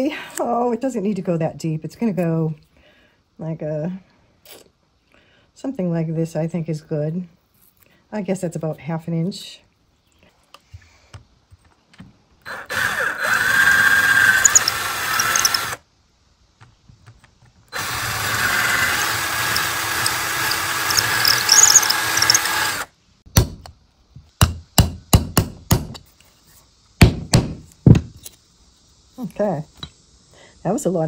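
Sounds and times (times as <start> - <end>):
cordless drill boring into wood: 12.5 - 15.8, 17.8 - 22.9.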